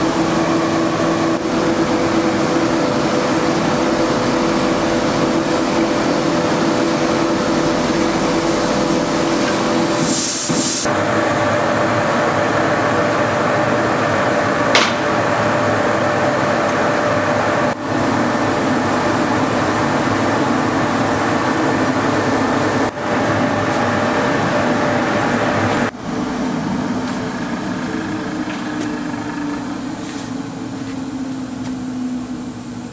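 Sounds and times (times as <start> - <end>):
abrasive shot hissing and rattling: 8.0 - 10.9
motor hum: 10.8 - 32.9.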